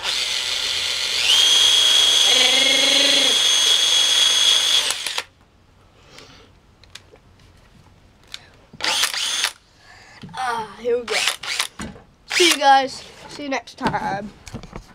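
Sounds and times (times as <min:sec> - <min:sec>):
cordless drill whine: 0:00.0 - 0:05.3, 0:08.8 - 0:09.6.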